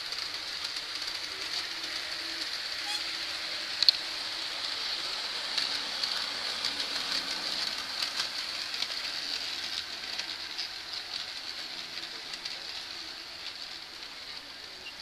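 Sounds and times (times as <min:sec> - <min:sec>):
model train whirring on track: 0:00.0 - 0:15.0
small irregular clicks: 0:00.0 - 0:15.0.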